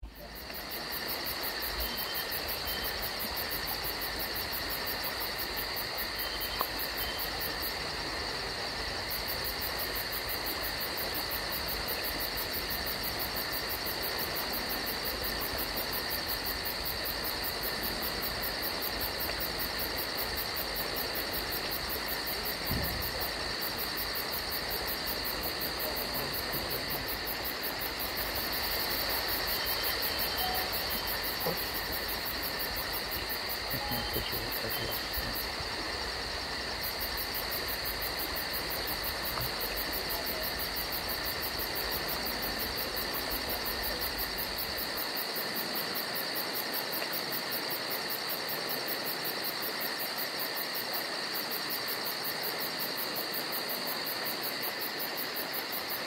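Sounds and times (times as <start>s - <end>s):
insects trilling: 0.0s - 56.0s.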